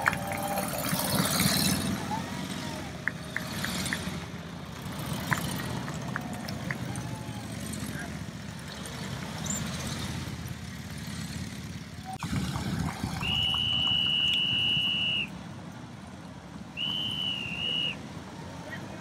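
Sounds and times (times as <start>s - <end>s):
motorcycles rumbling: 0.0s - 19.0s
high-pitched whistle blast: 13.2s - 15.3s, 16.8s - 18.0s.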